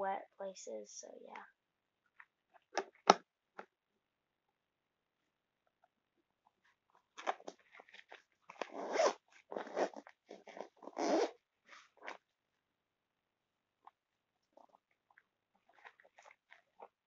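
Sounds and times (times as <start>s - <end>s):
zipper on a fabric backpack: 8.5s - 12.2s.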